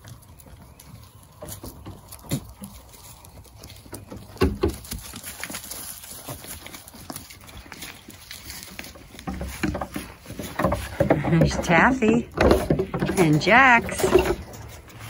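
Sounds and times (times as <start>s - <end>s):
goat hooves tapping on rocks: 0.0s - 15.0s
goats landing with thumps: 3.7s - 14.9s.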